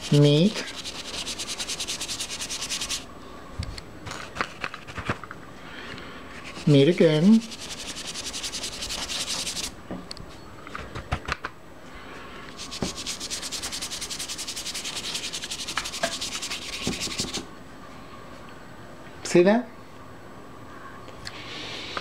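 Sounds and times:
pigment rubbed into paper: 0.0s - 3.0s, 6.4s - 9.7s, 12.6s - 17.4s.

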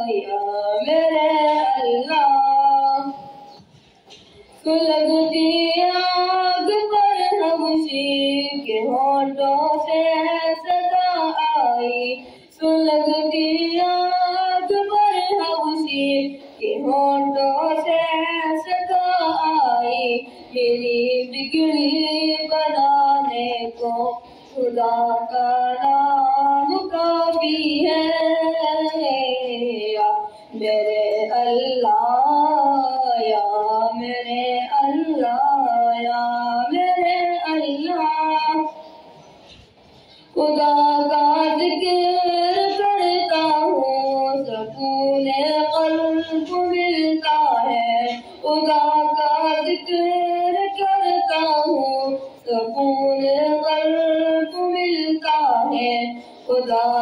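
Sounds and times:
boy singing into a microphone: 0.0s - 39.1s, 40.1s - 57.0s.

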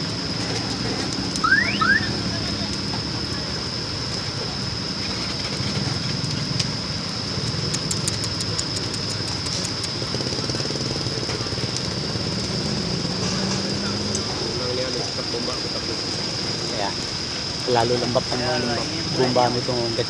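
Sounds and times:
constant high whine: 0.0s - 20.0s
crackling pops: 0.4s - 3.1s, 7.4s - 12.6s.

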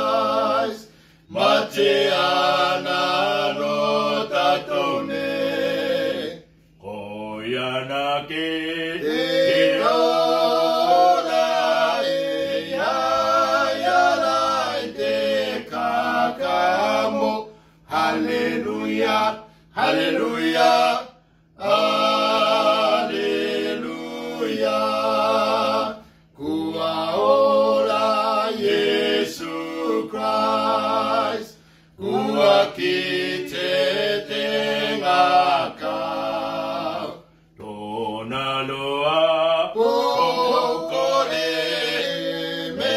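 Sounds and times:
men singing a cappella: 0.0s - 42.9s.

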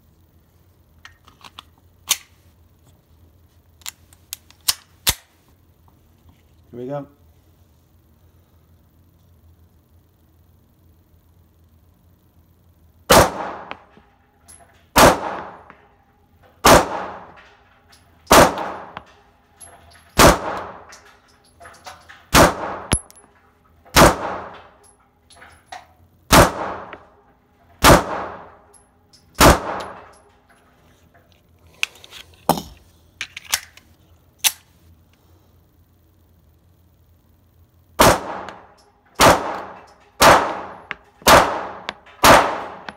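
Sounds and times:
pistol shots ringing indoors: 13.1s - 13.9s, 14.9s - 16.0s, 16.6s - 17.5s, 18.2s - 19.2s, 20.1s - 21.1s, 21.7s - 23.2s, 23.9s - 24.9s, 26.3s - 27.2s, 27.8s - 30.3s, 38.0s - 42.9s.

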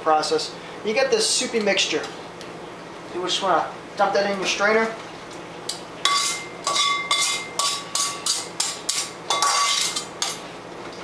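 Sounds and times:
metal tongs clinking on pan: 6.1s - 10.4s.

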